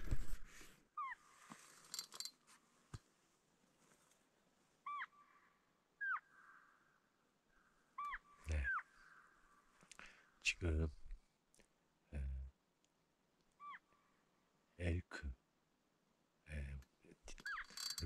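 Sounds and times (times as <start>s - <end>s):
electronic elk calls: 6.0s - 6.6s.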